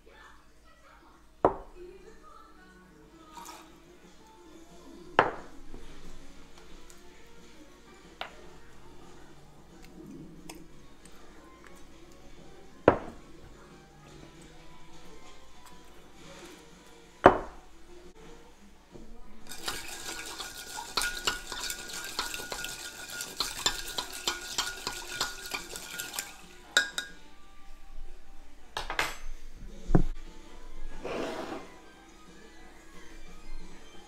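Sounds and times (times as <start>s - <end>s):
scraping and splashing: 19.5s - 26.6s
hard objects clinking and knocking: 19.5s - 27.2s.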